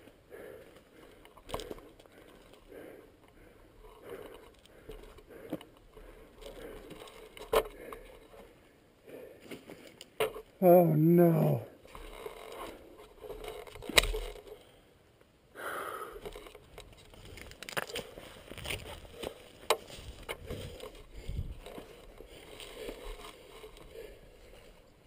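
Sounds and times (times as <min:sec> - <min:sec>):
camera handling noise: 0:13.3 - 0:14.6
footsteps in grass: 0:17.1 - 0:23.2.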